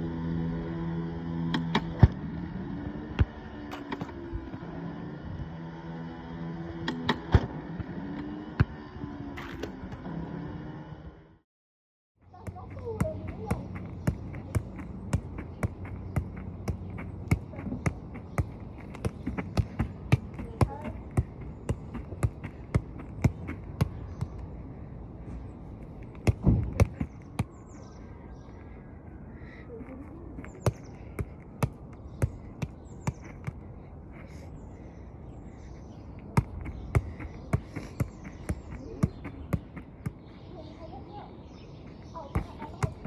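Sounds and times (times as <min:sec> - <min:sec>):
feet touching a football: 0:42.3 - 0:43.0.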